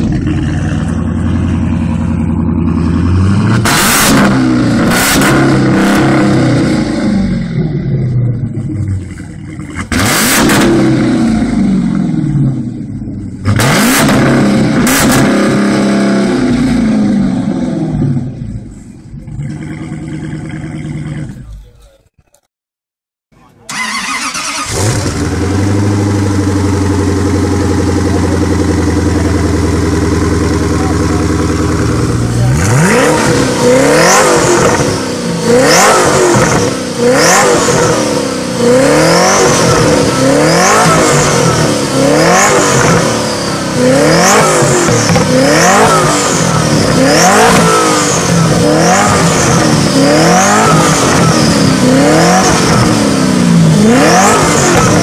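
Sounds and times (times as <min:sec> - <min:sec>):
car engine idling: 0:00.0 - 0:03.6, 0:05.5 - 0:10.0, 0:10.9 - 0:13.5, 0:23.6 - 0:35.5
car engine revving: 0:00.0 - 0:21.7, 0:23.7 - 0:55.0
car engine starter cranking: 0:23.7 - 0:25.4.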